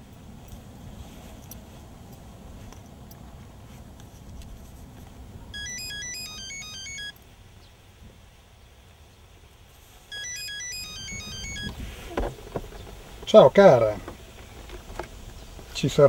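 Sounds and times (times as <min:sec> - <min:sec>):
phone ringtone beeping melody: 0:05.5 - 0:07.2, 0:10.1 - 0:11.8.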